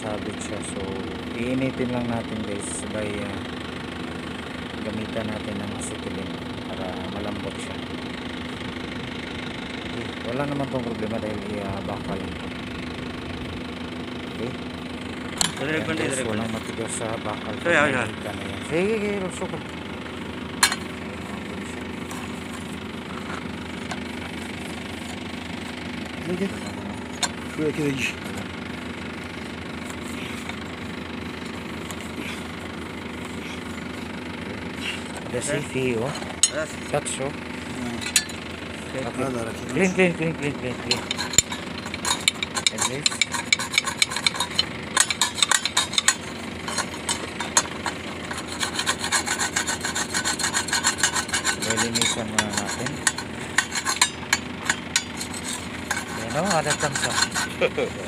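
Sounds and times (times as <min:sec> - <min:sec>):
engine idling: 0:00.0 - 0:58.0
steel bar scraping pulley: 0:40.6 - 0:58.0.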